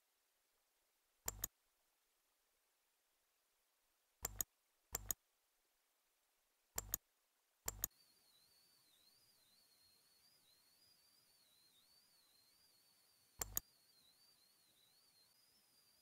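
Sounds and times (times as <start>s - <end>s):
computer mouse button clicks: 1.3s - 1.5s, 4.2s - 5.2s, 6.8s - 7.0s, 7.7s - 7.9s, 13.4s - 13.6s.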